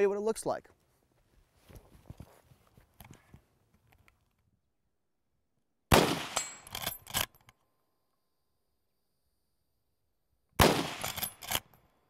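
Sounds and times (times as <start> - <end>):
rifle shot: 5.9 - 6.9, 10.6 - 11.7.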